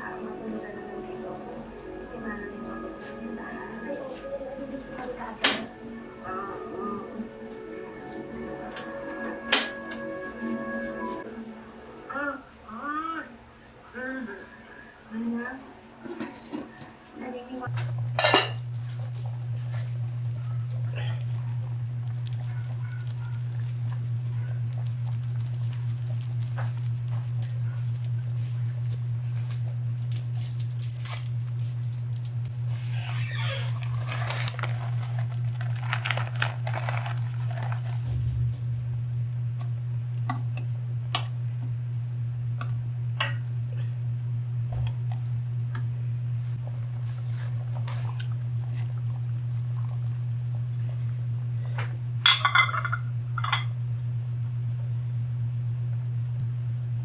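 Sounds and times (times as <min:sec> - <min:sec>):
steady low hum: 0:00.0 - 0:57.0
small clicks and patter: 0:18.8 - 0:32.6, 0:33.7 - 0:38.0.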